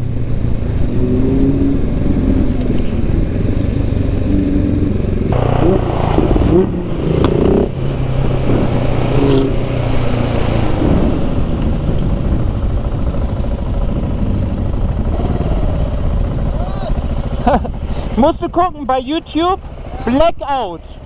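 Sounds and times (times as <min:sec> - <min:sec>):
wind rushing over microphone: 0:00.0 - 0:16.6
motorcycle engine running: 0:00.0 - 0:21.0
road noise: 0:00.0 - 0:21.0.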